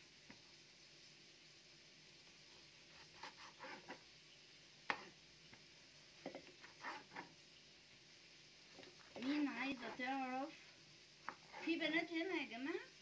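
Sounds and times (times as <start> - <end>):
knife cutting on a board: 2.9 - 4.0, 6.3 - 7.3.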